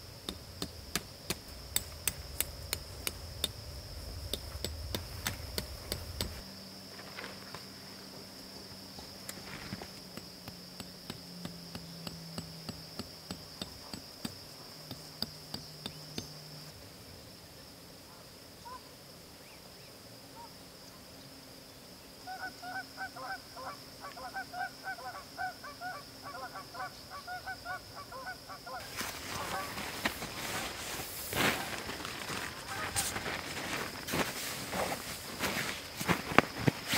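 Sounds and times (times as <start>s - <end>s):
crickets chirring: 0.0s - 36.9s
geese honking: 22.3s - 30.1s, 32.6s - 33.2s.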